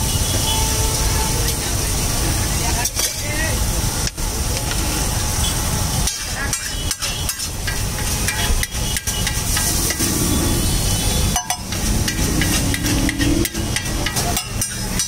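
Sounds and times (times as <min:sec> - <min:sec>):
egg sizzling on hot plate: 0:02.6 - 0:15.0
metal spatula scraping griddle: 0:11.6 - 0:15.0.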